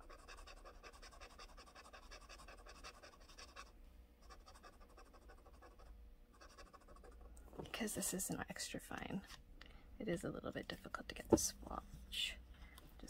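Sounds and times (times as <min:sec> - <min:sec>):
pen nib scratching on paper: 0:00.0 - 0:07.2.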